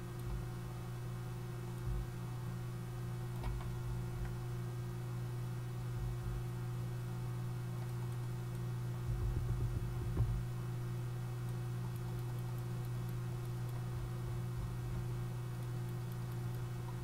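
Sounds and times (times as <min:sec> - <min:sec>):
computer hum: 0:00.0 - 0:17.0
mouse clicks: 0:15.5 - 0:17.0.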